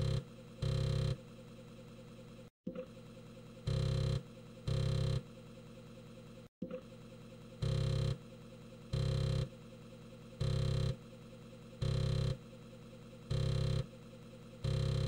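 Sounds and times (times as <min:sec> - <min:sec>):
disk drive head buzz: 0:14.6 - 0:15.0.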